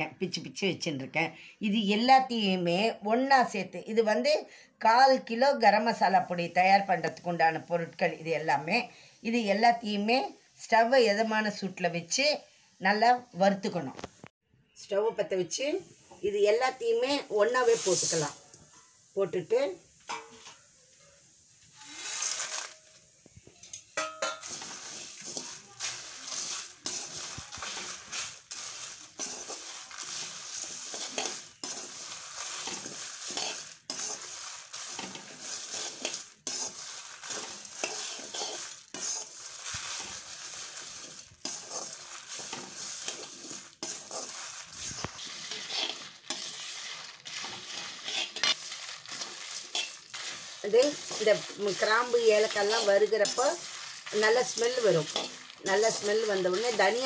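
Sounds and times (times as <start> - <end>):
seeds rustling against pan: 15.9 - 57.0
metal ladle scraping and knocking: 20.0 - 20.7, 23.6 - 28.4.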